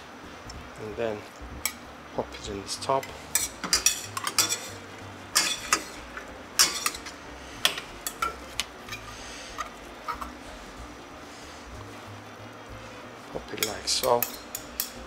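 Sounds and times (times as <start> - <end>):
metal tongs clinking on pan: 3.0 - 6.0, 6.6 - 9.0, 13.5 - 15.0.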